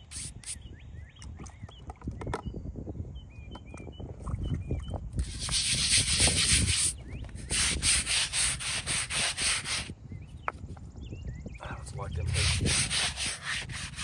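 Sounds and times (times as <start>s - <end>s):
brush scrubbing stone: 5.2s - 9.9s, 12.2s - 14.0s.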